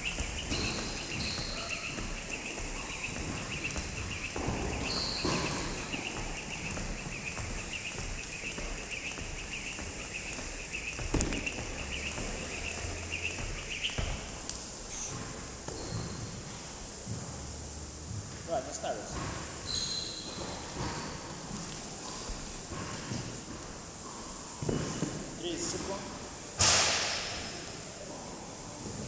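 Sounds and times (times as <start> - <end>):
jump rope ticking: 0.0 - 15.7.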